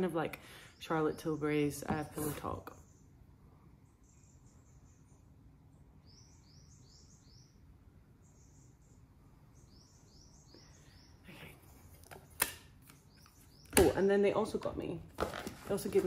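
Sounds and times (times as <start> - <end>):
faint bird chirping: 0.0 - 15.0.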